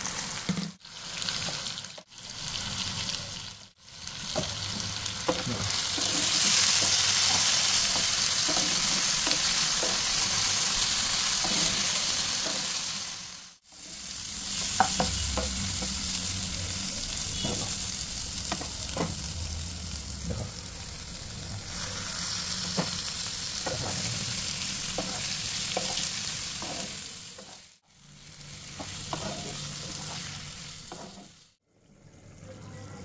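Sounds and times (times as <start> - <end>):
food sizzling in a frying pan: 0.0 - 31.6
wooden spatula scraping: 5.3 - 10.4, 23.6 - 27.7, 28.6 - 31.4.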